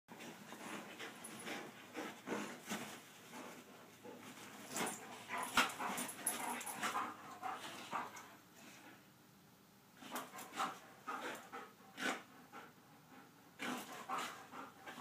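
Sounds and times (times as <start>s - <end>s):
dogs play-fighting vocalizing: 0.4s - 8.5s, 10.0s - 15.0s.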